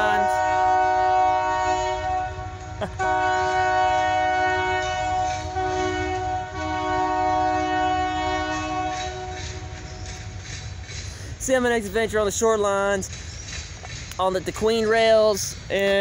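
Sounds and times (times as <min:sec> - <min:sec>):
locomotive air horn blasts: 0:00.0 - 0:09.9
low train rumble: 0:00.0 - 0:16.0.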